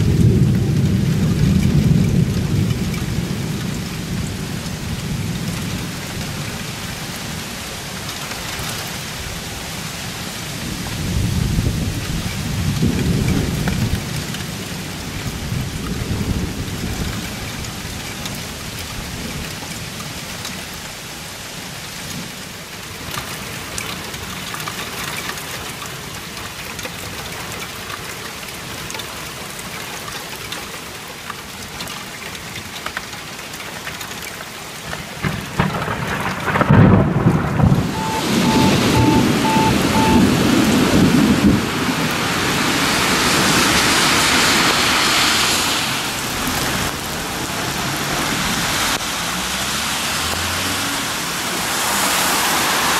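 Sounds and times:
rolling thunder: 0:00.0 - 0:06.6, 0:35.2 - 0:44.9
heavy rain falling: 0:00.0 - 0:52.9.

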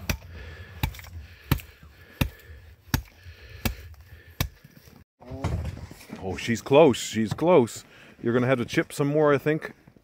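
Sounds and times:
hatchet chopping: 0:00.0 - 0:04.7.

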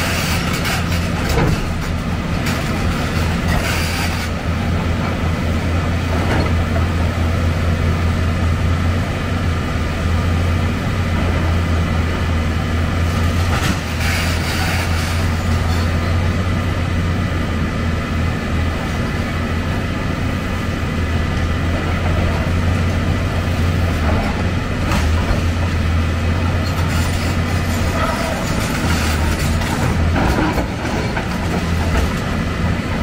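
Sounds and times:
excavator diesel engine running: 0:00.0 - 0:33.0
knocks and clanks: 0:00.2 - 0:03.8.

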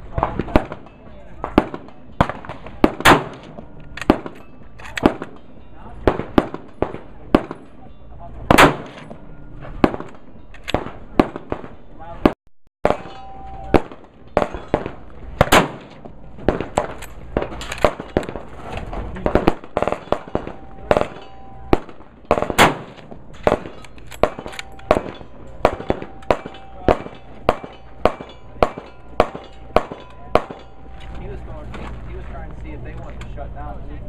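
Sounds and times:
gunshots: 0:00.1 - 0:07.8, 0:08.5 - 0:31.1
loud close rifle shots: 0:00.2 - 0:05.4, 0:06.0 - 0:07.8, 0:08.5 - 0:09.1, 0:09.8 - 0:11.8, 0:12.8 - 0:18.5, 0:19.2 - 0:30.8.

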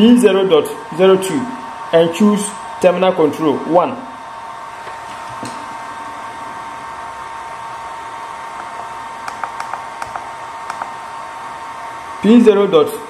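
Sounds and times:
keypad keys clicking: 0:09.3 - 0:10.9.

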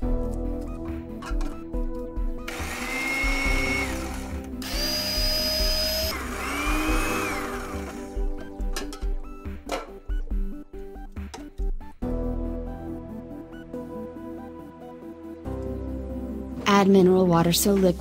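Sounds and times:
background music: 0:00.0 - 0:18.0
spice grinder motor whine: 0:02.5 - 0:08.4.

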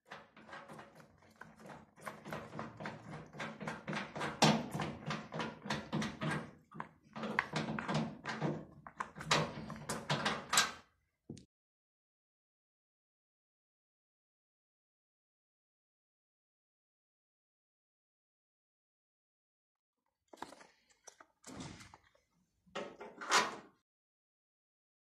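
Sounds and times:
washing machine knocks and rattles: 0:00.0 - 0:10.8.

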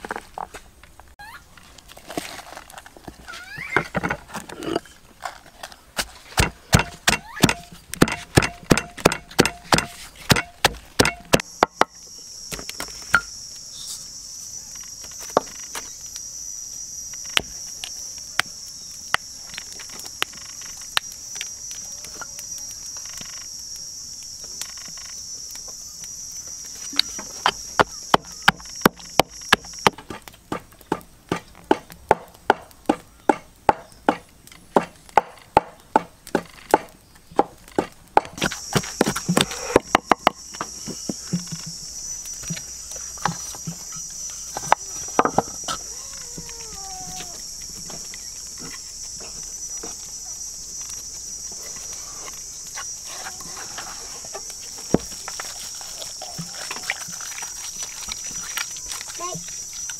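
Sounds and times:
pestle pounding in wooden mortar: 0:06.0 - 0:11.9, 0:27.4 - 0:41.8
high-pitched insect drone: 0:11.0 - 0:30.0, 0:38.4 - 0:59.9.

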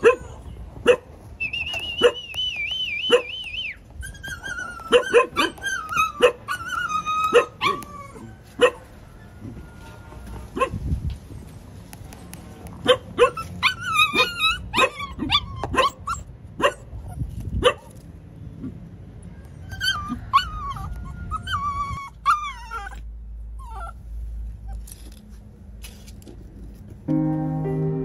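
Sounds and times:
puppy whining and yelping: 0:03.0 - 0:08.8, 0:12.9 - 0:17.3, 0:19.4 - 0:25.0.

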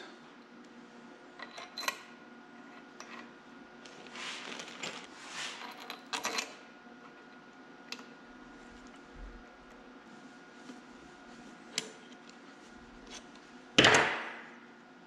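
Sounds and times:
rustling: 0:03.9 - 0:05.7.

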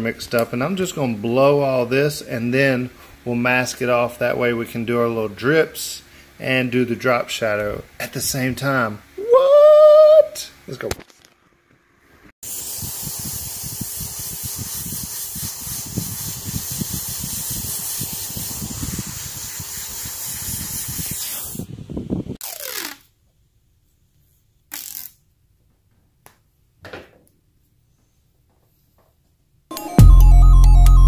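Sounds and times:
airbrush spraying hiss: 0:12.4 - 0:21.8.

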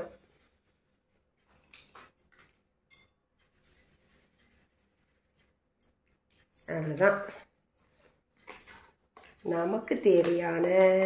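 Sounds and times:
marker pen scratching on card: 0:00.0 - 0:02.6, 0:03.4 - 0:06.5.

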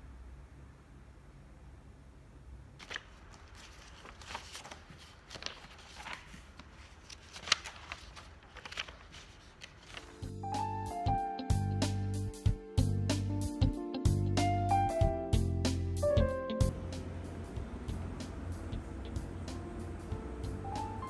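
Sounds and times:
paper pages rustling: 0:02.8 - 0:10.4.

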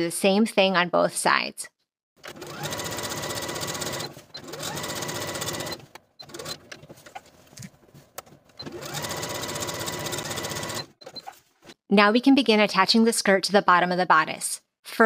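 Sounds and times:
sewing machine stitching: 0:02.2 - 0:07.2, 0:08.5 - 0:11.4.

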